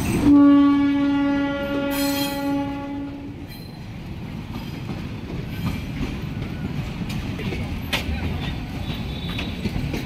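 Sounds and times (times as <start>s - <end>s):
locomotive horn blast: 0.2s - 3.4s
train wheels clattering: 3.4s - 10.0s.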